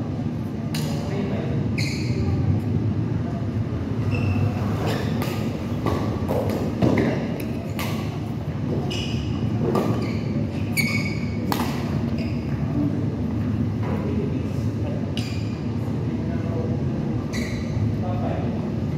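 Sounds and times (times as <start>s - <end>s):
steady low hum: 0.0s - 18.9s
sneakers squeaking on court: 1.8s - 2.4s, 4.0s - 8.1s, 8.7s - 12.7s, 17.3s - 17.8s
rackets hitting shuttlecock: 4.9s - 8.3s, 11.4s - 12.1s.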